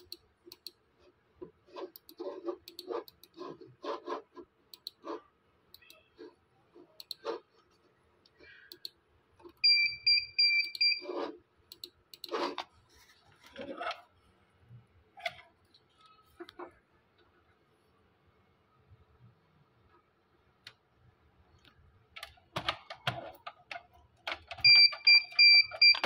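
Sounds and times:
computer mouse clicking: 0.0 - 0.8, 1.8 - 6.1, 7.0 - 9.6, 11.7 - 12.7.

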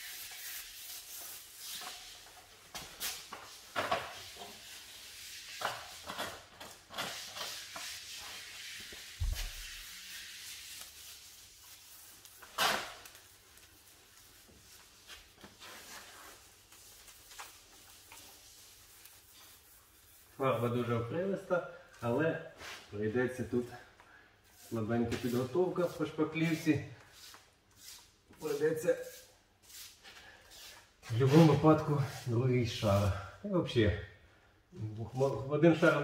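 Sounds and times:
paintbrush strokes: 0.0 - 2.4, 13.6 - 20.9, 24.4 - 33.2.

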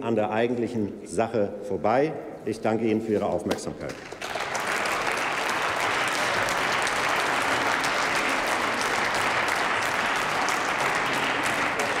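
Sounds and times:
crowd applauding: 3.9 - 12.0.

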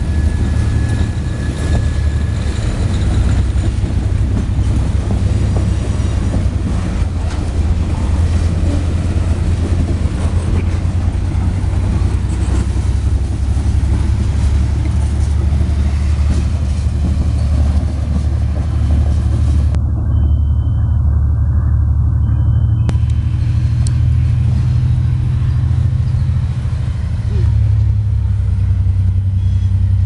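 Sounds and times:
train wheels rumbling on rails: 0.0 - 30.0.

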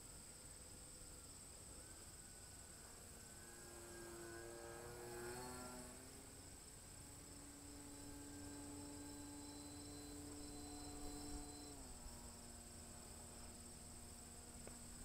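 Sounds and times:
high insect trill: 0.0 - 15.0
rc plane motor hum: 0.0 - 15.0.

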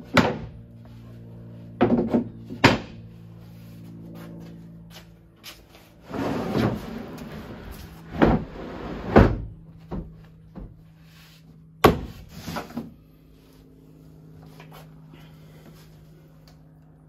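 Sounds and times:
wooden knocks and thuds: 1.8 - 3.0, 9.2 - 10.9
wood scraping on plastic liner: 6.0 - 9.2.

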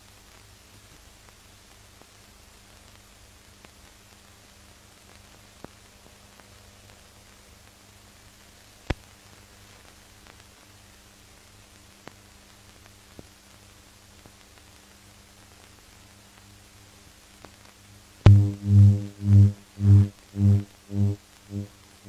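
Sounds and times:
film soundtrack hiss and hum: 0.0 - 22.0.

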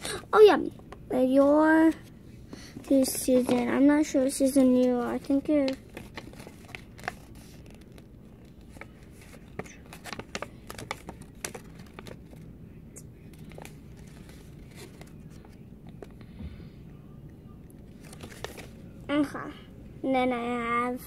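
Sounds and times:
paper crinkling and rustling: 2.6 - 12.5, 13.2 - 16.2, 17.8 - 18.9.

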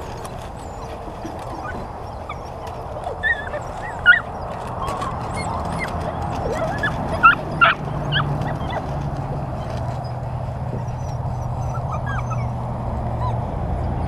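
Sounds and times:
puppies yipping and whining: 0.0 - 14.0.

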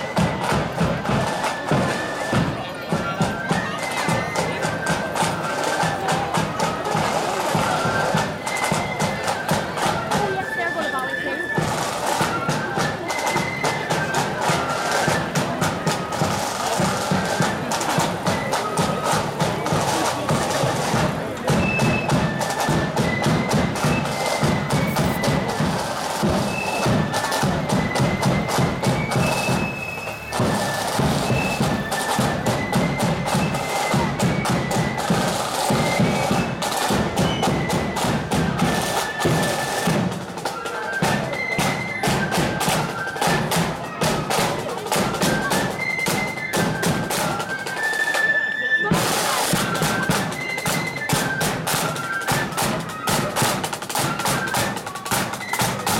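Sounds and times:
flute melody: 0.0 - 55.9
snare drums rattling: 11.5 - 43.6, 49.0 - 55.9
bass drum beat: 24.9 - 25.4.

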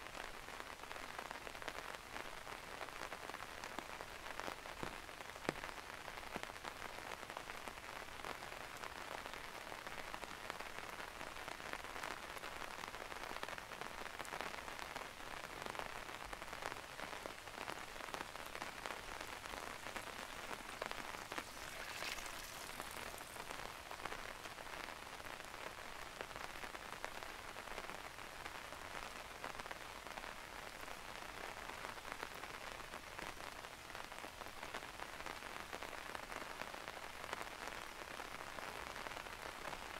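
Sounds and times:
steady rain hiss: 0.0 - 39.9
raindrops ticking: 16.4 - 25.6.

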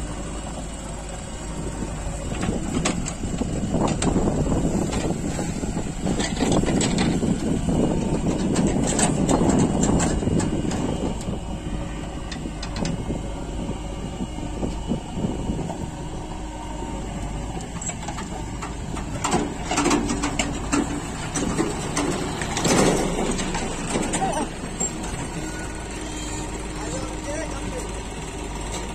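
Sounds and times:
tractor engine rumbling: 0.0 - 28.9
trolley clattering and knocking: 17.8 - 25.5.

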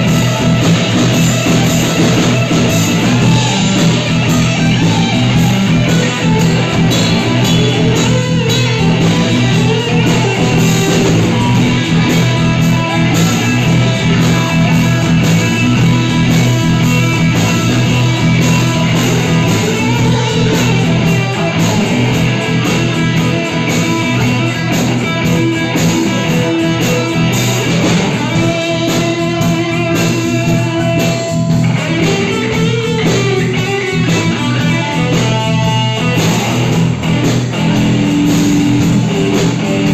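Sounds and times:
drums: 0.0 - 39.9
electric guitar with bending notes: 0.0 - 39.9
rock band playing live: 0.0 - 39.9.

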